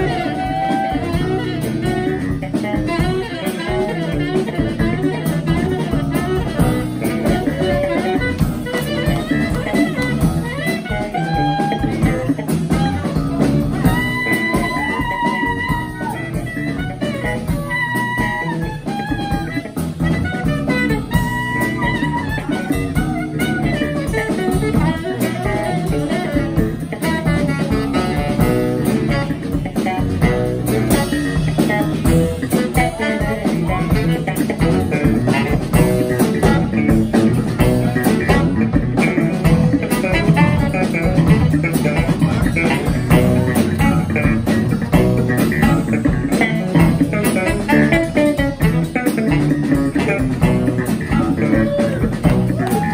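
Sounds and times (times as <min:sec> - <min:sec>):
drum kit: 0:00.0 - 0:52.9
electric bass: 0:00.0 - 0:52.9
saxophone melody: 0:00.0 - 0:52.9.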